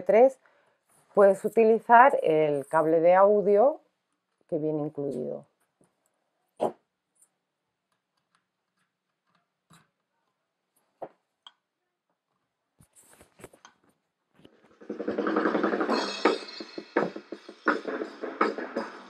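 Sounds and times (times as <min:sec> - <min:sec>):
music from small speaker: 0:14.8 - 0:19.0.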